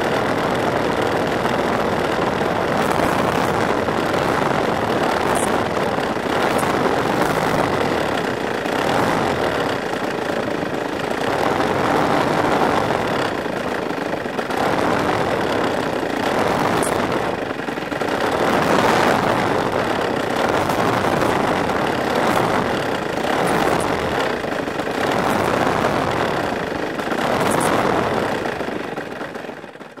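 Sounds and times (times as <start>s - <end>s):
two-stroke model airplane engine: 0.0s - 30.0s.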